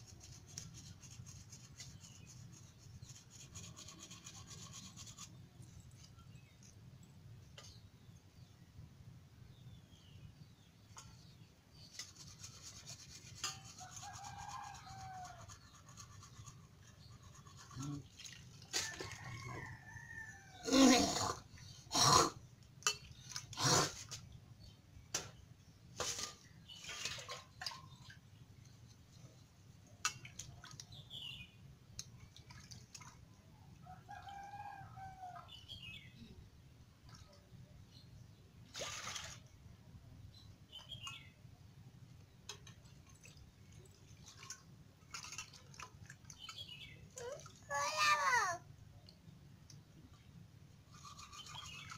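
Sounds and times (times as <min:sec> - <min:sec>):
fish rubbed in bowl of water: 0:00.0 - 0:06.9, 0:11.0 - 0:21.5, 0:50.8 - 0:51.9.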